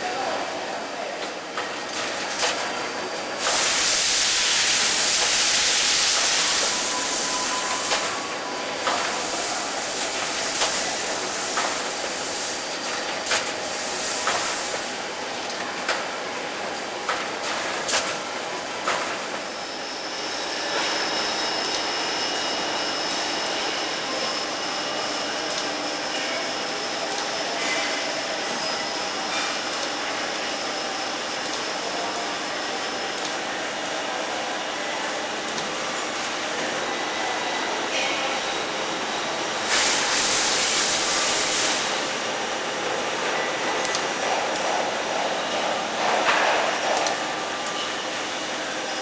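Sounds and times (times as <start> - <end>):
loud air hiss: 3.4 - 12.8, 38.6 - 42.8.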